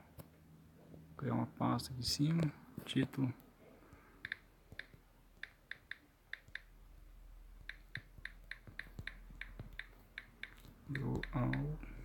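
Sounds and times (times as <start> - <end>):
phone keyboard clicks: 4.2 - 6.7, 7.6 - 12.0.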